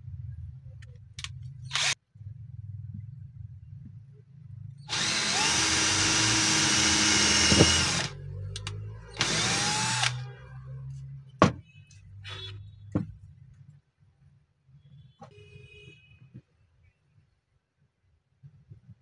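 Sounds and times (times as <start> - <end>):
cordless drill boring into wood: 4.9 - 8.1, 9.2 - 10.2.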